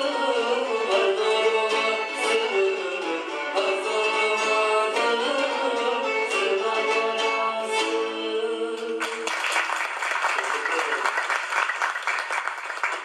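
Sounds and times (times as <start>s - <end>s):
acoustic folk ensemble playing: 0.0s - 9.2s
man singing: 0.0s - 9.3s
applause: 9.0s - 13.0s.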